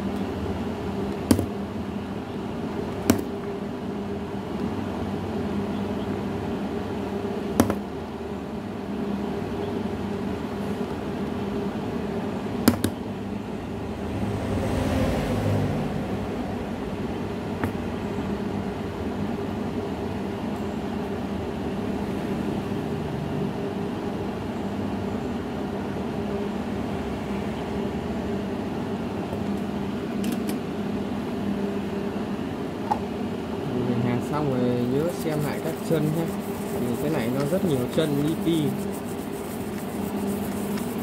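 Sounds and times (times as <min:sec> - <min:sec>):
small motor whirring hum: 0:34.8 - 0:41.0.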